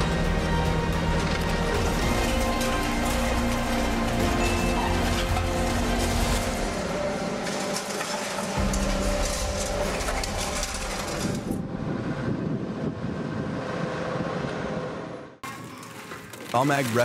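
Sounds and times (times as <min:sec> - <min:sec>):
excavator running: 0:00.0 - 0:16.3
concrete debris clattering: 0:00.9 - 0:11.6.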